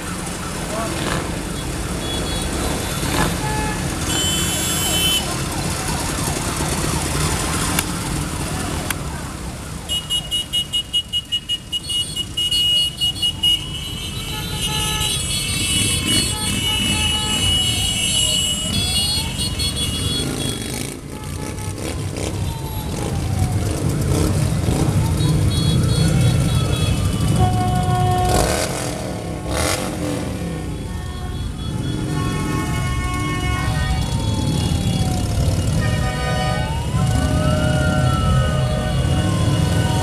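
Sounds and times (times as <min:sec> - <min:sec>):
siren-like wail: 0:04.9 - 0:10.0, 0:21.8 - 0:28.7, 0:33.0 - 0:40.0
motorcycles riding past: 0:15.4 - 0:30.9, 0:31.8 - 0:40.0.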